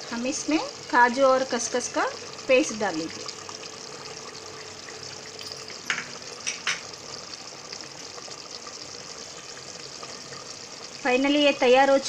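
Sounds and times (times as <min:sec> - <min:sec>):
thick gravy bubbling in a pot: 0:00.0 - 0:12.0.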